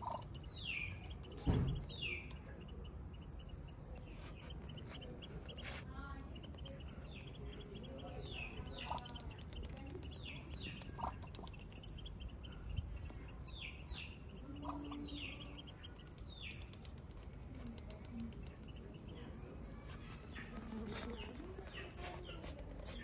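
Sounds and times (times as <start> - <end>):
duckling peeping: 0.0 - 23.0.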